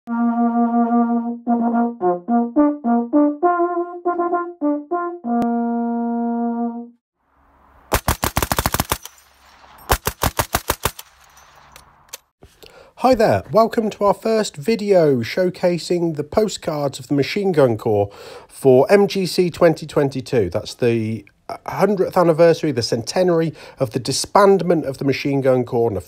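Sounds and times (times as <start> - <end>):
machine-gun fire bursts: 7.9 - 11.3.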